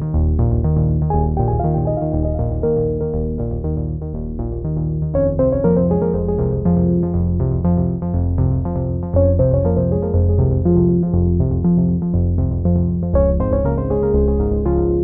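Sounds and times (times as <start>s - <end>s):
background music with bass line: 0.0s - 15.0s.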